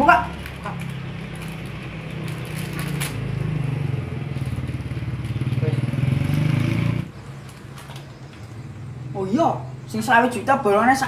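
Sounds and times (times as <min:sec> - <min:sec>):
plastic wrapper crinkling: 0:00.0 - 0:03.3, 0:07.3 - 0:08.6
motorcycle engine running: 0:00.8 - 0:07.2.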